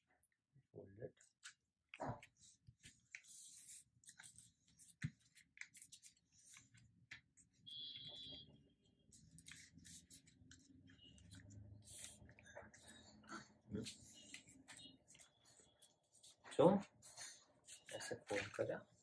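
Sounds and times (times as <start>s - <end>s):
paper rustling and crinkling: 2.1s - 7.4s.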